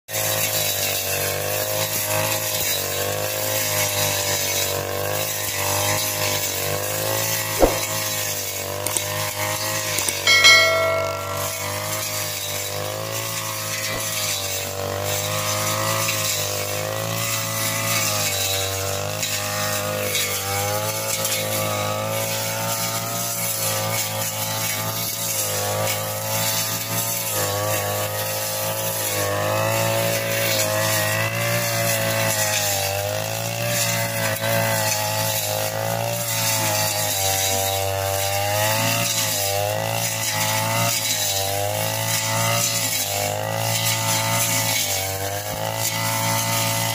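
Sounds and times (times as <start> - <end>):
brush cutter engine cutting weeds: 0.1 - 9.8, 13.5 - 46.9
brief ringing strike: 7.6 - 8.0, 10.3 - 12.3.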